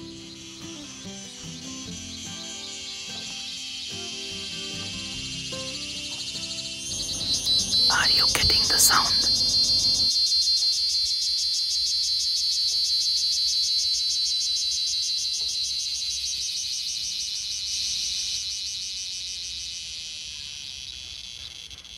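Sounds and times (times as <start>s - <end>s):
cicadas calling: 0.0s - 21.9s.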